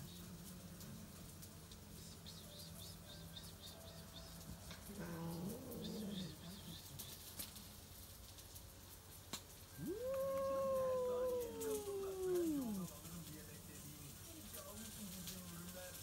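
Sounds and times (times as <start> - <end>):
cat growling: 4.7 - 7.1, 9.7 - 13.1
cat yowling: 4.8 - 6.9, 9.7 - 13.0.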